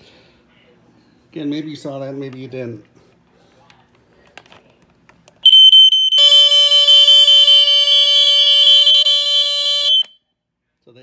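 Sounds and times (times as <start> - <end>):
smoke alarm piercing tone: 5.4 - 10.2.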